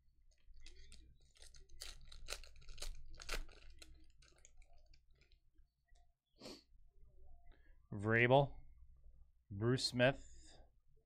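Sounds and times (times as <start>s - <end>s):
foil wrapper tearing and crinkling: 0.6s - 5.3s.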